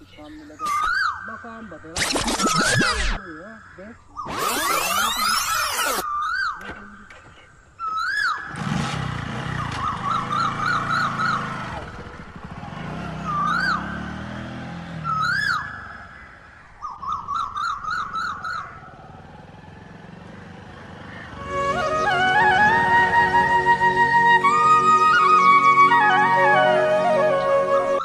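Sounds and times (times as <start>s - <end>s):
birds chirping and trilling: 0.0s - 28.0s
motorcycle engine pulling away: 8.1s - 28.0s.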